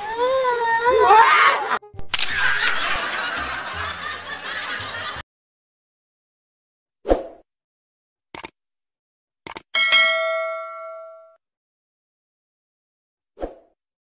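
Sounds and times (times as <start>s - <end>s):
people laughing: 1.0s - 5.2s.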